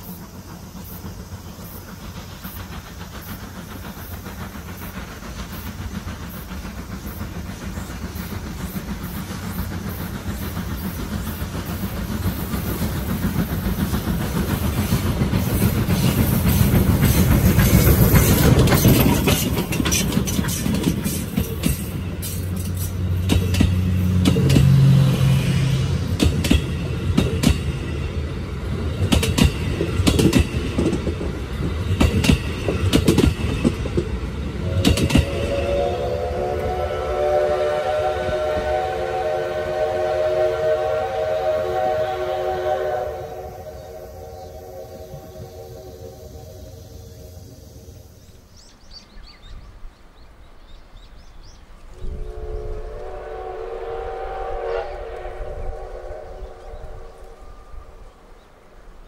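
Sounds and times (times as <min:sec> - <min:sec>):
wheels clicking over rail joints: 0:00.0 - 0:25.1, 0:25.7 - 0:35.6
steam locomotive rumbling: 0:00.0 - 0:59.0
steam whistle: 0:34.6 - 0:47.6, 0:52.0 - 0:58.4.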